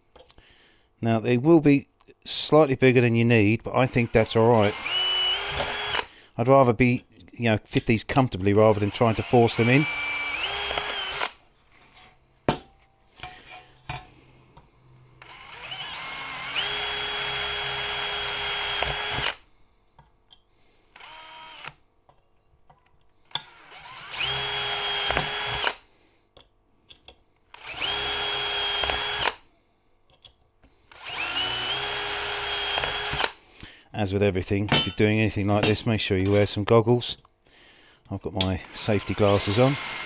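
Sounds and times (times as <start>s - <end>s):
drill whining: 3.8s - 6.1s, 8.7s - 11.4s, 15.2s - 19.4s, 20.9s - 21.8s, 23.3s - 25.8s, 27.5s - 29.4s, 30.9s - 33.4s, 38.6s - 40.0s.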